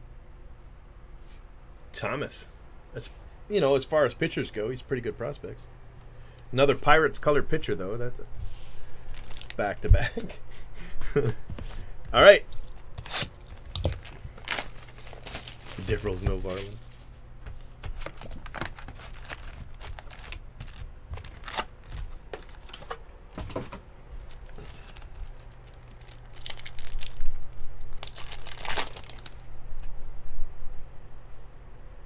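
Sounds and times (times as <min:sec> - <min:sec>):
wrappers crinkling and tearing: 0:09.0 - 0:10.4, 0:12.5 - 0:23.5, 0:24.2 - 0:29.5.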